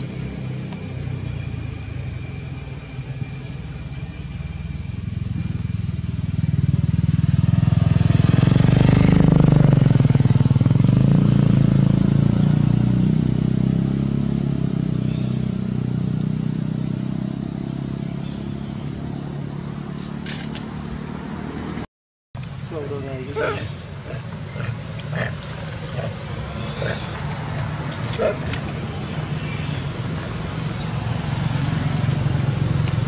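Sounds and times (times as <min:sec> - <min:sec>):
high-pitched hiss: 0:00.0 - 0:33.0
motor engine humming: 0:22.4 - 0:33.0.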